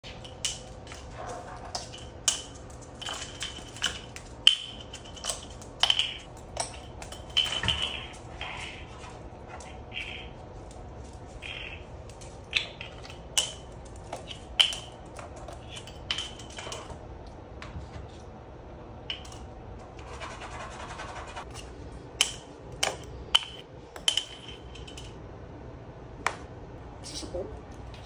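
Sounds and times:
bottle cap clattering on floor: 1.7 - 8.3
cap scraping along floor: 7.0 - 13.3, 19.8 - 21.5.

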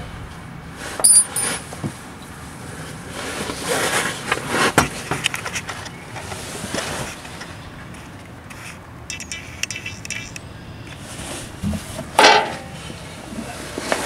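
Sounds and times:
metal tools clinking: 1.0 - 1.6.

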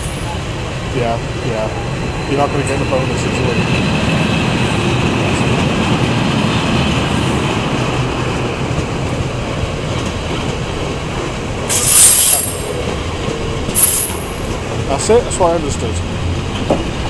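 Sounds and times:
freight train wheels rumbling: 0.0 - 17.0
high-pitched wheel squeal: 11.7 - 12.8.

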